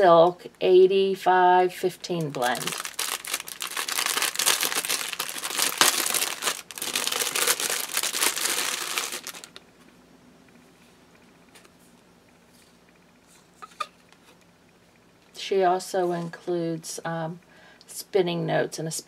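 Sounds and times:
plastic bag crinkling: 0:02.1 - 0:09.6.

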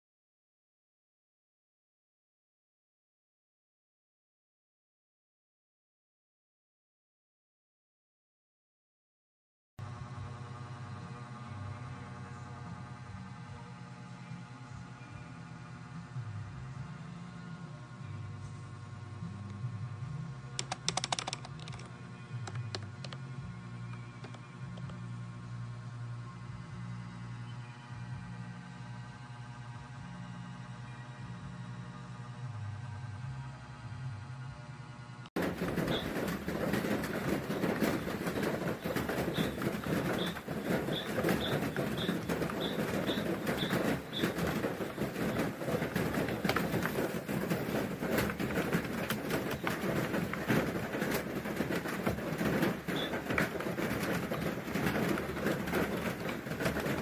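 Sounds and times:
keyboard keys clicking: 0:20.6 - 0:21.8
background rumble: 0:35.4 - 0:57.0.

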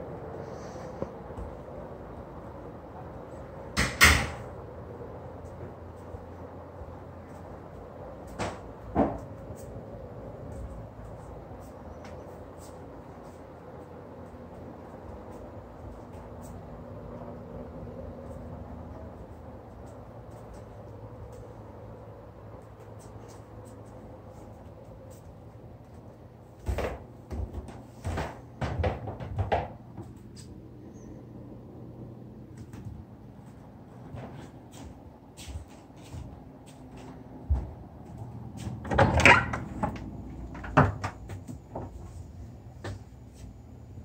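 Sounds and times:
low room tone hum: 0:00.0 - 0:44.0
footsteps on wooden plank floor: 0:34.0 - 0:38.8.

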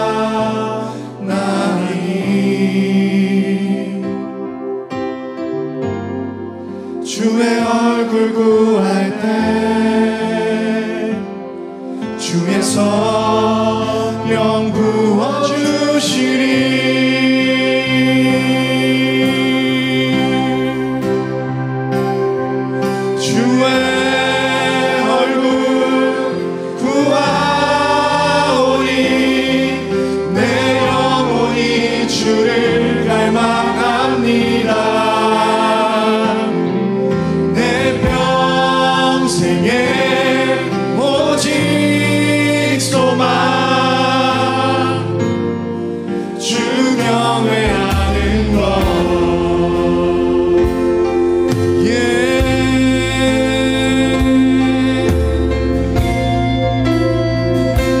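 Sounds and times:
group singing together: 0:00.0 - 0:04.5, 0:07.0 - 0:21.4, 0:22.8 - 0:56.3
man singing lead: 0:00.0 - 0:04.5, 0:07.0 - 0:21.6, 0:23.0 - 0:56.1
keyboards: 0:00.0 - 0:58.0
bass guitar: 0:11.3 - 0:58.0
acoustic guitar: 0:16.2 - 0:58.0
drums: 0:37.6 - 0:38.6, 0:47.6 - 0:58.0.

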